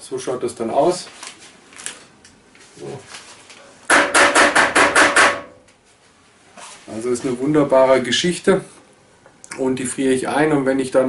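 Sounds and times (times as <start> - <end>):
rapid knocking on hard surface: 3.9 - 5.5.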